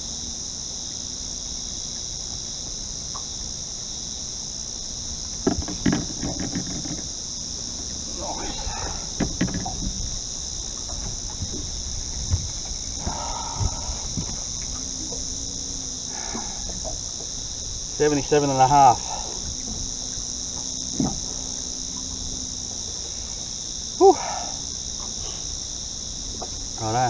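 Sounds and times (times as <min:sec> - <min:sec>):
high-pitched insect chorus: 0:00.0 - 0:27.0
light clicks and knocks: 0:05.4 - 0:07.1, 0:09.2 - 0:10.1.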